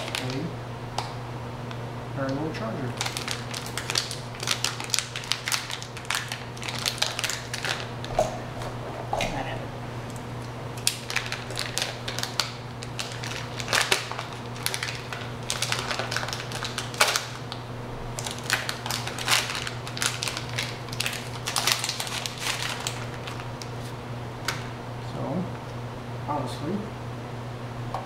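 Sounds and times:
plastic packaging crinkling and tearing: 0.0s - 0.5s, 3.0s - 8.0s, 10.8s - 24.7s.

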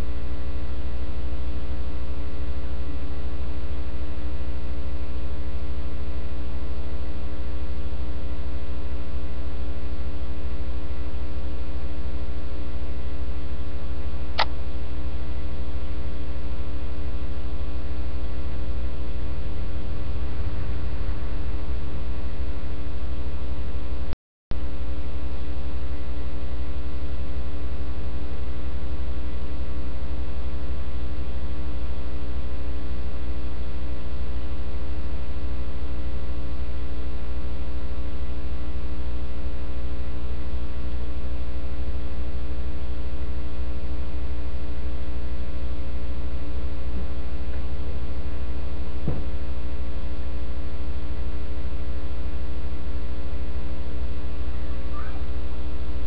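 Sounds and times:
electrical mains hum: 0.0s - 56.0s.

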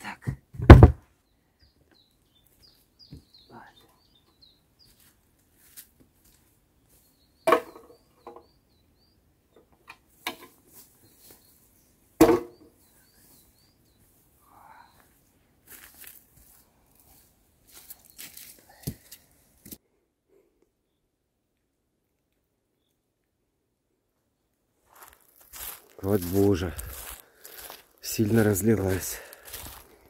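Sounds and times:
small bird chirping: 1.2s - 5.2s, 6.8s - 9.7s, 10.9s - 15.2s
sharp knocks: 12.2s - 12.6s
footsteps: 24.9s - 30.0s.

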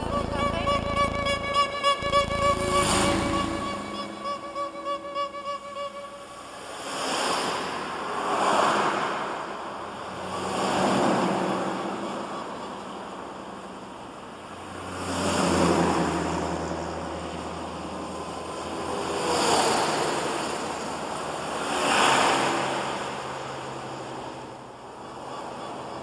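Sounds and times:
low synth drone: 0.0s - 6.6s
surf-like noise swells: 0.0s - 26.0s.

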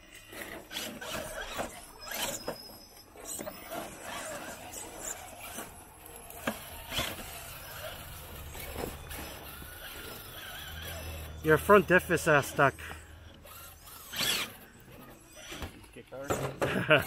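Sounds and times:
electric motor whine: 0.0s - 16.0s.

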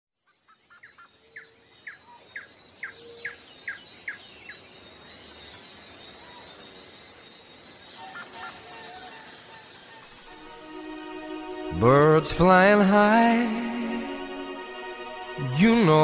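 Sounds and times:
birds chirping: 0.2s - 16.0s
insects hissing: 2.4s - 11.7s.

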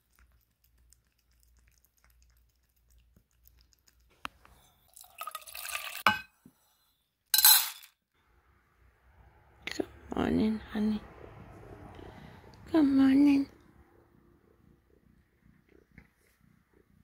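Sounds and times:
metal bowls clinking and clanking: 5.9s - 6.4s, 7.4s - 7.9s.

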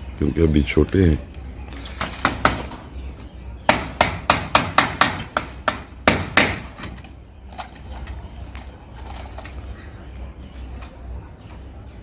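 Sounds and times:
hammer striking nails: 2.0s - 2.8s, 3.7s - 7.0s.

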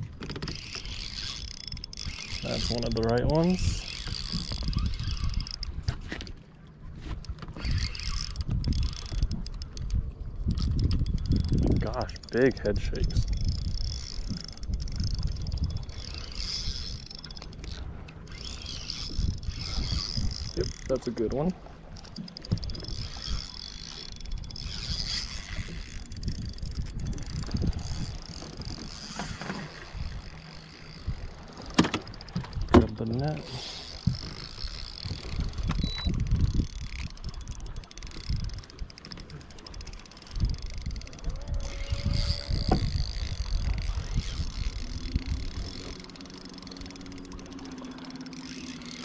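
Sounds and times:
wind rumbling on microphone: 0.0s - 49.0s
knocks and bumps on a boat: 31.7s - 33.0s
short squeak: 35.7s - 36.1s.

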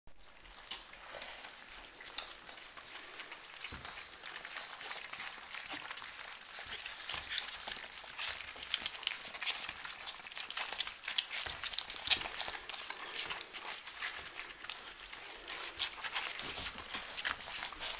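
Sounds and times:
puppies lapping and chewing: 0.1s - 17.9s.

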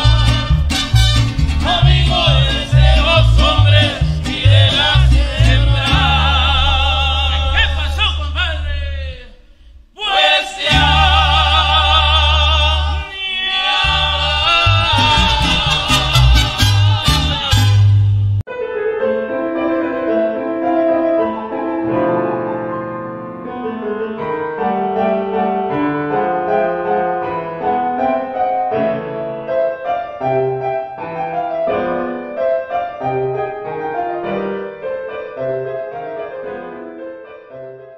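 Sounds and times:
gentle piano music: 18.5s - 37.9s.

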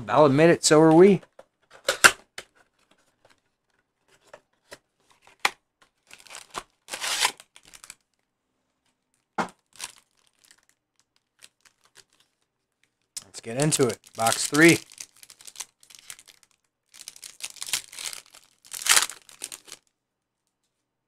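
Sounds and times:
foil packs rustling and tearing: 6.1s - 8.0s, 9.6s - 12.2s, 13.4s - 19.8s.

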